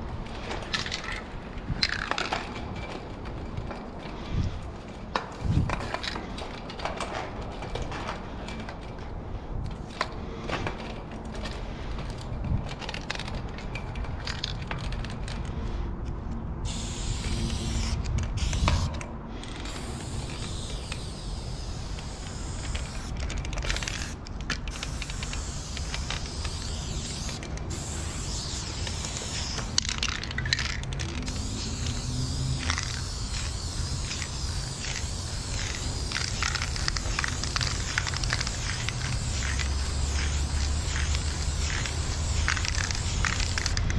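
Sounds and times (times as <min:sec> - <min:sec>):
spray paint can hissing: 0:16.6 - 0:43.9.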